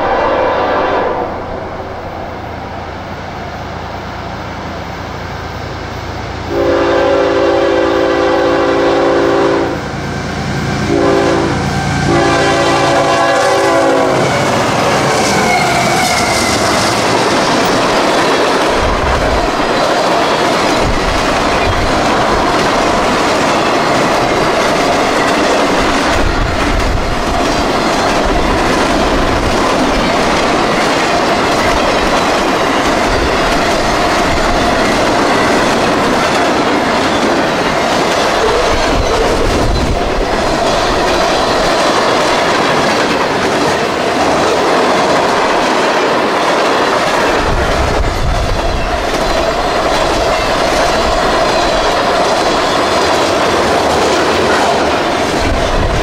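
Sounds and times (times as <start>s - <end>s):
freight train rolling past: 0.0s - 56.0s
train wheels clattering over rail joints: 14.3s - 56.0s.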